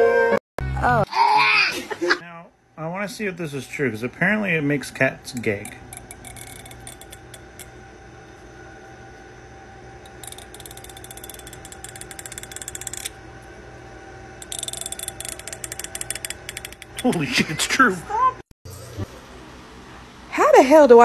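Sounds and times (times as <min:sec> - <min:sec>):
finger rattling comb teeth: 0:05.6 - 0:07.7, 0:10.1 - 0:13.2, 0:14.4 - 0:17.2.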